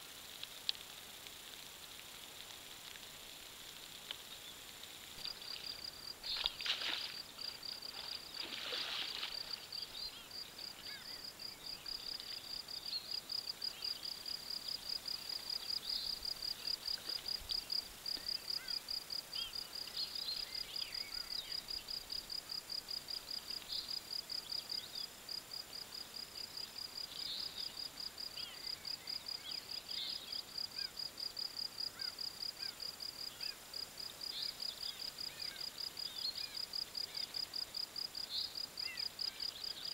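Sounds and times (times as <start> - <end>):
cricket chirping: 2.7 - 39.9
faint bird chirps: 7.9 - 14.0, 15.6 - 22.0.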